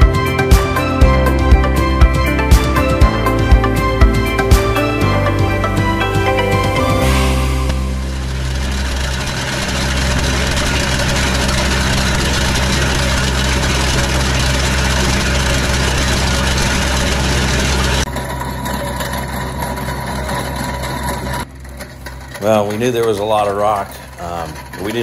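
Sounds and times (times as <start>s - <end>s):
loader engine running under load: 0.0s - 25.0s
trencher chain cutting rocky clay: 18.1s - 25.0s.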